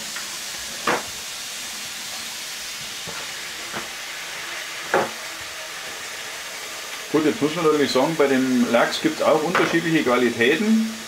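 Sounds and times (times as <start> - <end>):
steady hiss: 0.0 - 11.0
objects knocking on a counter: 0.8 - 1.1, 4.9 - 5.2.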